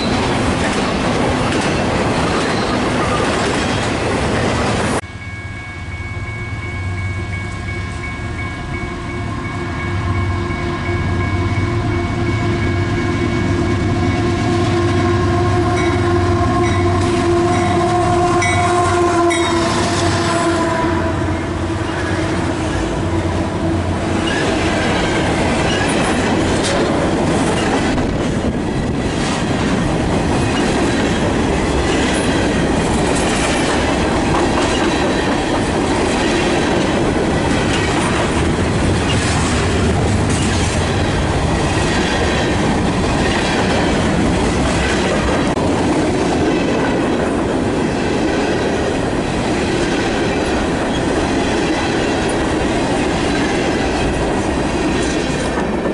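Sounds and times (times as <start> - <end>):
train wheels clacking on rails: 0.0 - 5.1, 23.9 - 55.9
locomotive air horn: 10.0 - 24.3.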